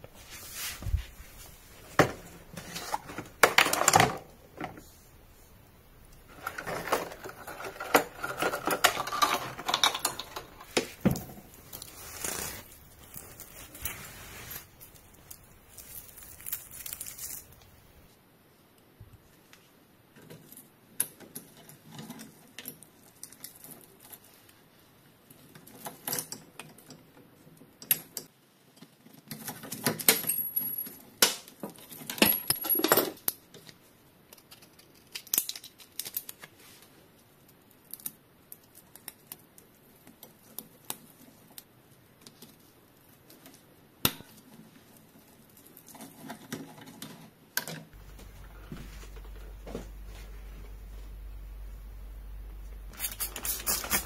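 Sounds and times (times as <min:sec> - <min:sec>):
metal tools clinking: 0:06.3 - 0:11.4
low hum: 0:48.0 - 0:54.0.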